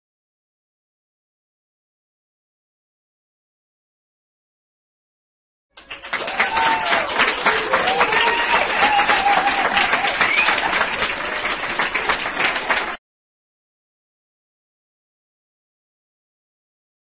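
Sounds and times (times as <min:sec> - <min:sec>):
audience applauding: 0:05.8 - 0:13.0.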